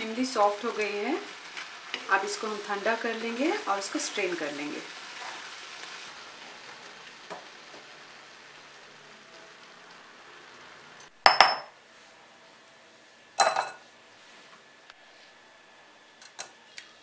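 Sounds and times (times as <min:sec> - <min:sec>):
simmering mixture sizzling: 0:00.0 - 0:17.0
metallic clanks of kitchenware: 0:11.3 - 0:11.7, 0:13.4 - 0:13.8.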